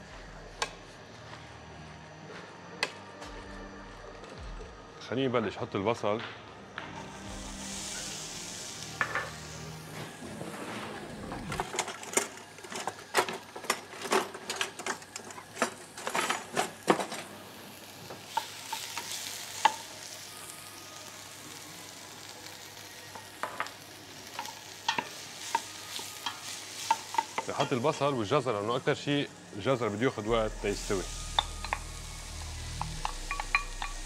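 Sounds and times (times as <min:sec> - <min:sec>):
onion sizzling in a pot: 0:06.9 - 0:14.0, 0:14.7 - 0:34.0.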